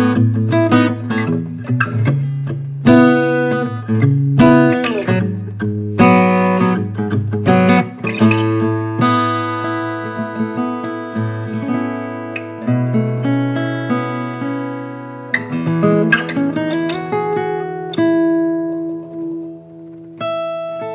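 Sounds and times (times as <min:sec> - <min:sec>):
fingerpicked acoustic guitar: 0:00.0 - 0:20.9.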